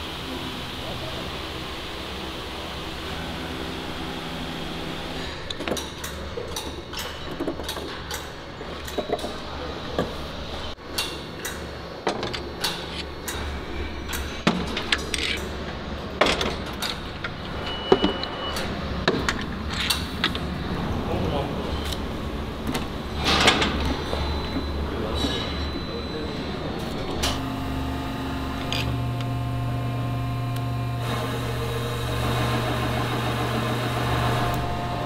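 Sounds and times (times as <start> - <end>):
low machinery hum: 8.4 - 35.0.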